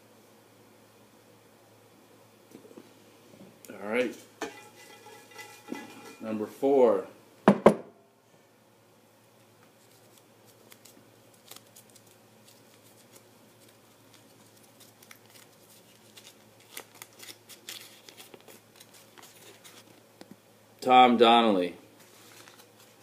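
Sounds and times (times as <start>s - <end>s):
paper slip rustling: 9.8s - 20.0s, 22.0s - 23.0s.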